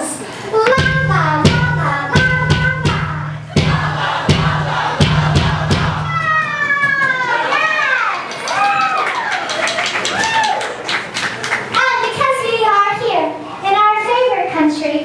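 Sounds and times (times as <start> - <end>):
drum hits: 0.6 - 7.4
rock band playing: 0.8 - 6.7.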